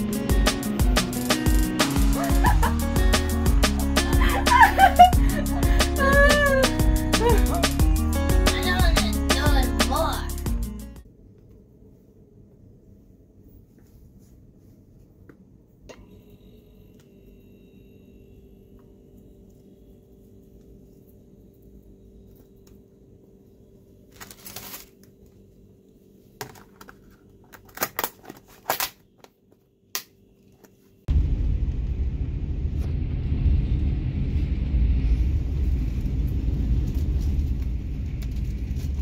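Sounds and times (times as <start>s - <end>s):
faint steady hum: 11.0s - 39.0s
plastic lid clicks and crackles: 26.4s - 29.3s.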